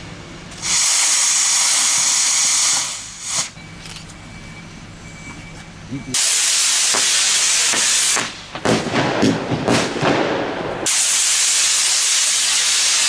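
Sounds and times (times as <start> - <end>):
rocket motors hissing: 0.0 - 4.0, 5.7 - 8.5, 10.8 - 13.0
fireworks crackling and popping: 0.5 - 3.6, 6.1 - 13.0.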